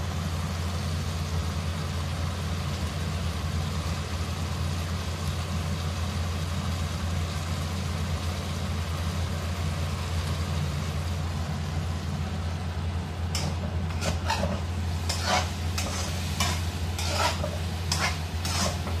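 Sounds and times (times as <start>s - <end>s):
food frying sizzle: 0.0s - 19.0s
spatula scraping a wok: 13.3s - 19.0s.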